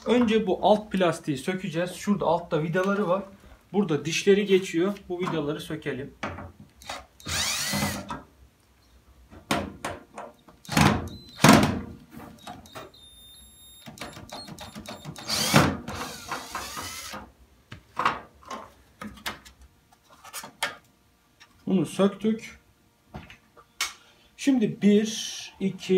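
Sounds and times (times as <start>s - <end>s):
cordless drill motor whining: 6.8s - 8.0s, 12.6s - 17.2s.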